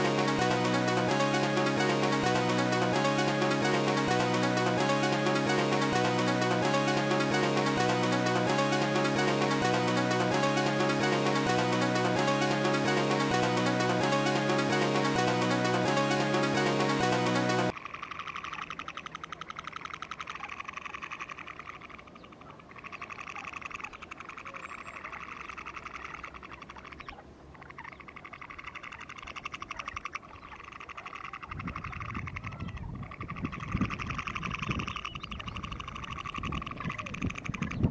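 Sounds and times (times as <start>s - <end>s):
frogs trilling: 17.7s - 37.9s.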